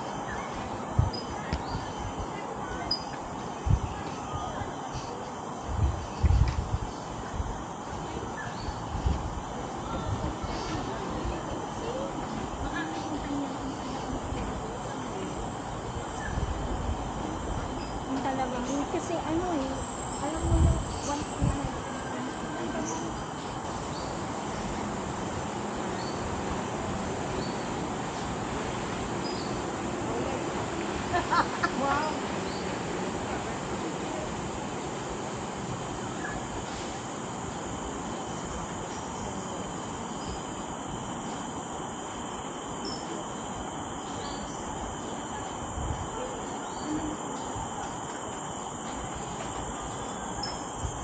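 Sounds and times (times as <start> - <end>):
insects droning: 0.0 - 51.0
rainforest ambience: 0.0 - 51.0.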